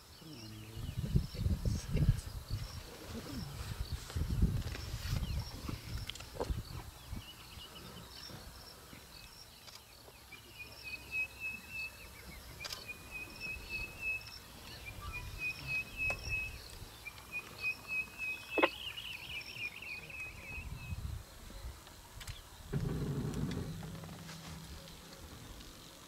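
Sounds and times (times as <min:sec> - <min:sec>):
low background rumble: 0:22.7 - 0:26.0.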